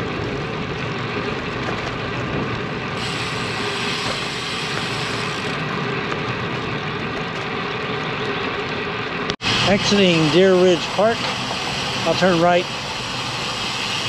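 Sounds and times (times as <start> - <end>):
bike tyres rolling on asphalt: 0.0 - 14.0
bright hiss: 3.0 - 5.5, 9.4 - 14.0.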